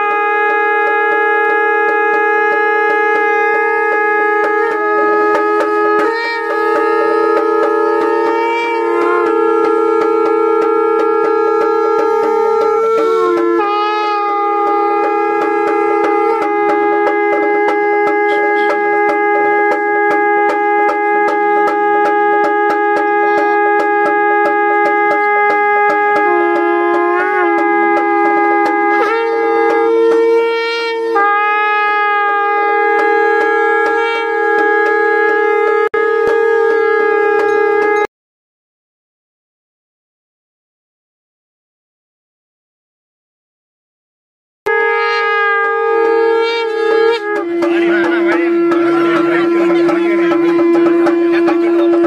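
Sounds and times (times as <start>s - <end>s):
wind instrument long notes: 0.0s - 38.1s, 44.7s - 52.0s
steady drone: 44.8s - 52.0s.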